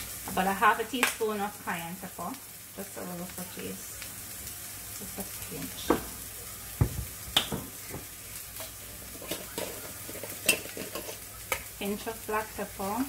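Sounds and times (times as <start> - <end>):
onions frying hiss: 0.0 - 13.0
bottles set down on counter: 6.8 - 8.1.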